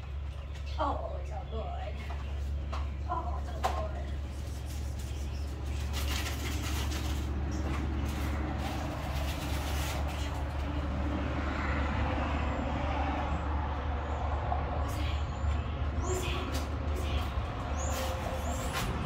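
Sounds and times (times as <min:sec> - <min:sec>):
brief rustles: 0:03.8 - 0:10.7.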